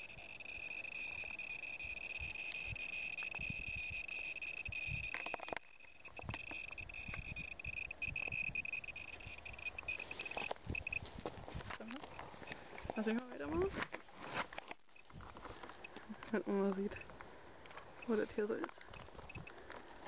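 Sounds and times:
geiger counter alarm beep: 0.0 - 11.0, 16.9 - 17.1, 18.0 - 18.2
geiger counter clicks: 0.0 - 11.0, 16.7 - 17.1, 18.0 - 19.6.

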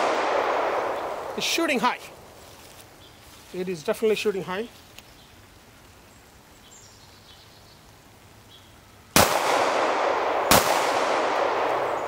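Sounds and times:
pistol shots with echo: 0.0 - 1.0, 9.2 - 12.0
faint outdoor background: 0.0 - 12.0.

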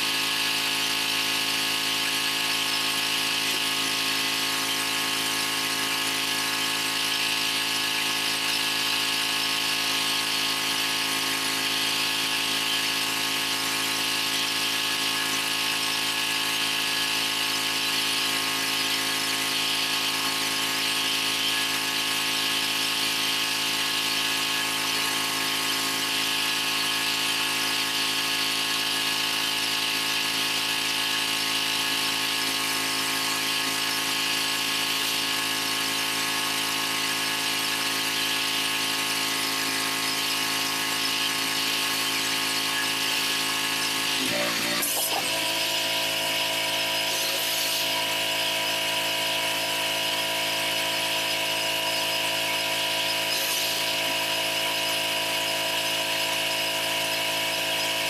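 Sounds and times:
motor whine: 36.4 - 58.0
pressure washer spraying water: 36.4 - 58.0.

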